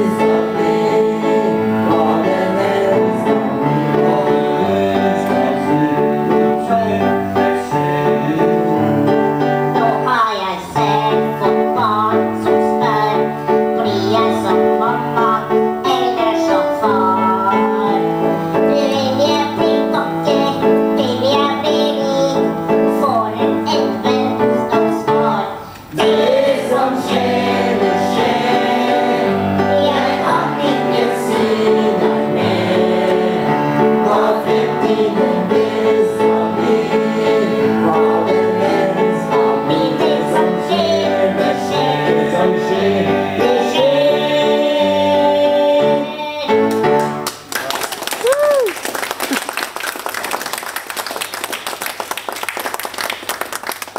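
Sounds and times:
women singing together: 0.0 - 13.3, 25.9 - 46.2
upright piano accompaniment: 0.0 - 47.5.

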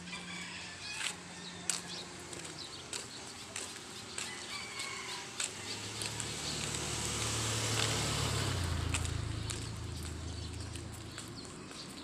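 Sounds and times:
vehicle engine hum: 0.0 - 12.0
footsteps scuffing on road: 0.8 - 12.0
roosters crowing faintly: 3.6 - 7.4.

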